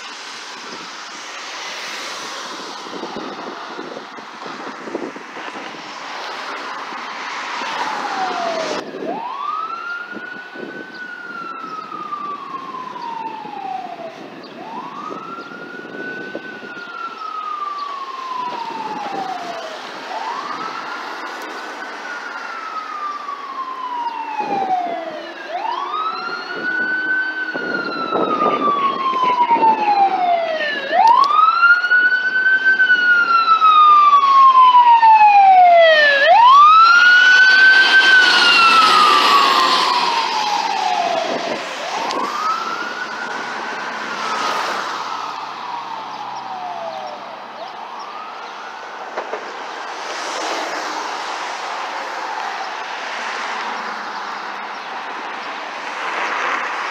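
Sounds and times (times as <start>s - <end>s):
fire truck siren wailing: 0.0s - 56.9s
rushing noise: 35.8s - 46.7s, 49.0s - 56.9s.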